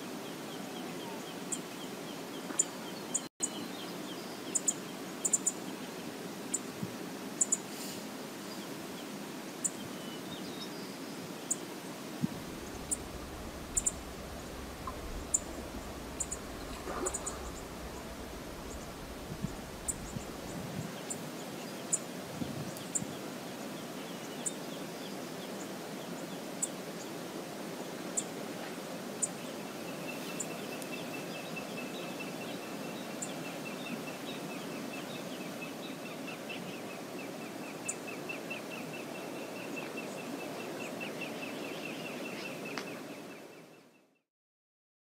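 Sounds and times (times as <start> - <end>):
river water flowing: 11.2 - 22.3
fast high ticking notes: 12.4 - 20.6.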